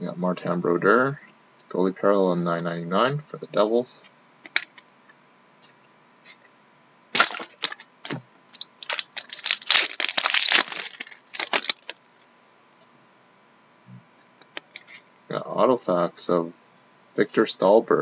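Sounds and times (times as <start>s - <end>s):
wrapper crinkling and tearing: 7.2s - 12.0s.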